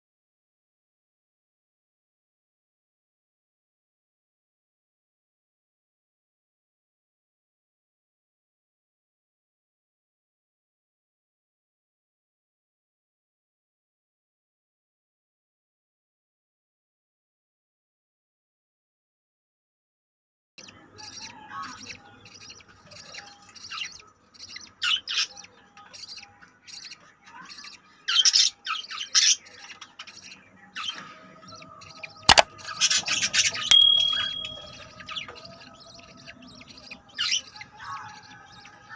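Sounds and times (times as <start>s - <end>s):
budgerigars chirping: 21.0s - 38.9s
sharp click: 33.7s - 34.7s.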